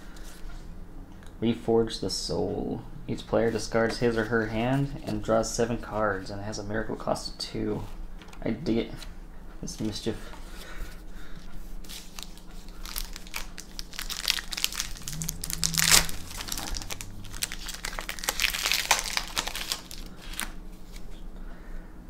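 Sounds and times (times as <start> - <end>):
foil wrapper crinkling: 11.9 - 21.0.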